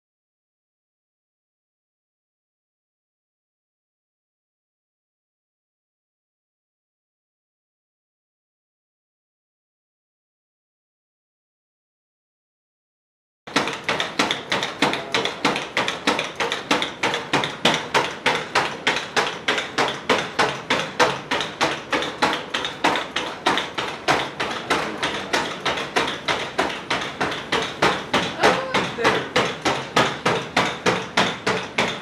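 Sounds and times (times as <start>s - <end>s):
robot feet tapping hard floor: 13.5s - 32.0s.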